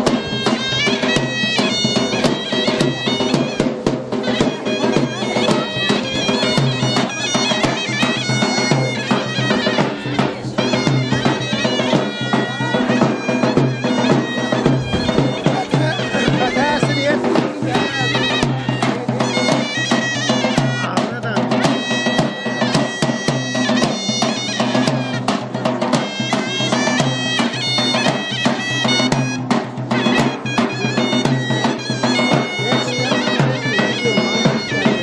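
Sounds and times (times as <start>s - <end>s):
sharp drum beats: 0.0s - 35.0s
shrill reed melody: 0.0s - 35.0s.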